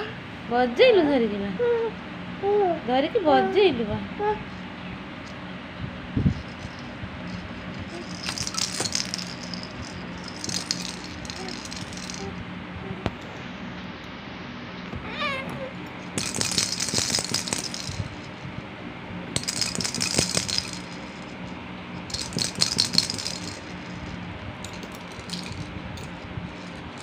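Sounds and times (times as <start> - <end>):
plastic baby rattle shaken: 6.3 - 12.4, 16.0 - 18.4, 19.4 - 27.0.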